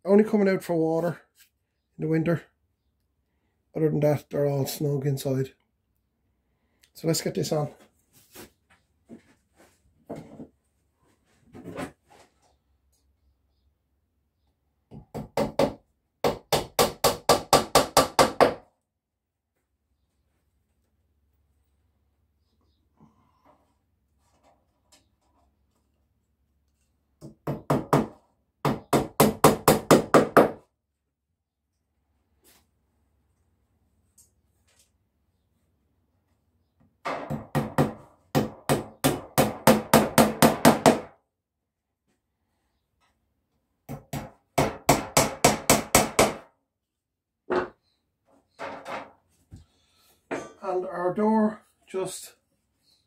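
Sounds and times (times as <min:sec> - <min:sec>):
hammer striking wood: 0:14.9 - 0:18.7, 0:27.2 - 0:30.7, 0:37.0 - 0:41.2, 0:43.9 - 0:46.5.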